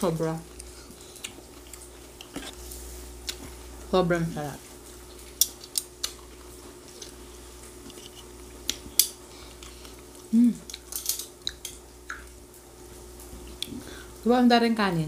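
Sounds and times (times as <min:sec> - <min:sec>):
faint steady hum: 0:00.0 - 0:15.0
person humming: 0:10.3 - 0:10.8
metal utensils clinking on dishes: 0:10.9 - 0:11.3.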